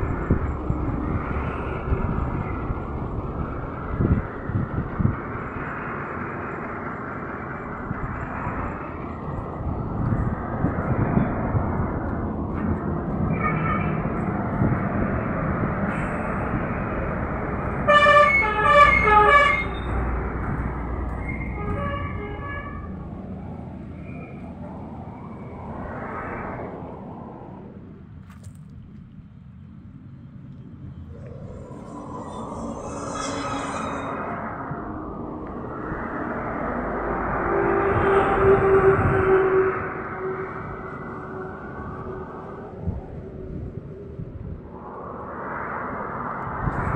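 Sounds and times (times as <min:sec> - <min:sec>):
road traffic rumbling: 0:00.0 - 0:46.9
vehicle horns honking: 0:17.8 - 0:20.0, 0:21.4 - 0:22.9.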